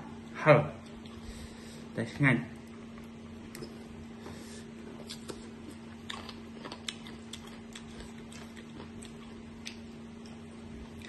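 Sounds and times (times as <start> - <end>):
steady low hum: 0.0 - 11.0
chewing mouth clicks and smacks: 5.0 - 10.4.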